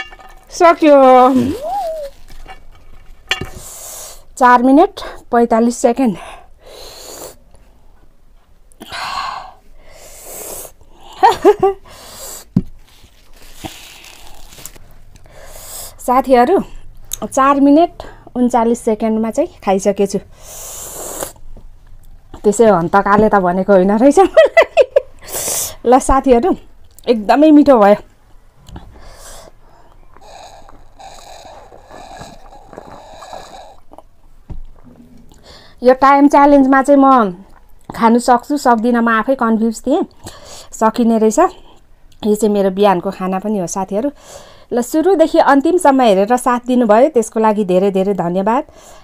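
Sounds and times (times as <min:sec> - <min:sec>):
short loud voiced sounds: 0:01.3 - 0:02.1
person breathing heavily: 0:28.8 - 0:33.9, 0:35.4 - 0:35.8.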